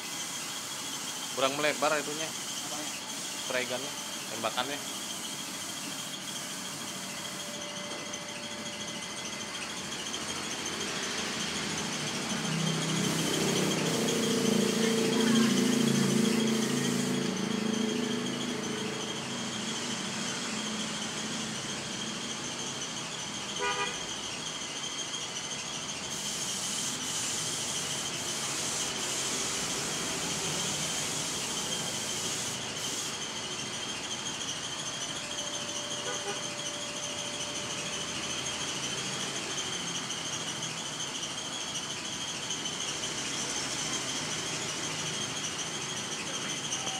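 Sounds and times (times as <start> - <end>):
spray gun hissing: 0.0 - 8.6, 9.7 - 19.0, 26.1 - 35.4.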